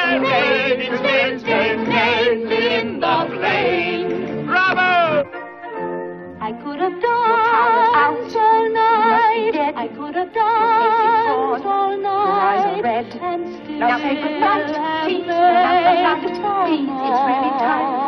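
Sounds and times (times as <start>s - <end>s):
orchestral accompaniment: 0.0s - 11.6s
woman singing with vibrato: 6.4s - 18.0s.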